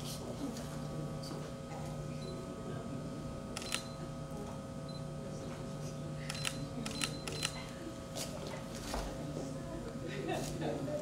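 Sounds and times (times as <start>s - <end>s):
steady hum: 0.0s - 11.0s
camera shutter clicks: 3.6s - 3.9s.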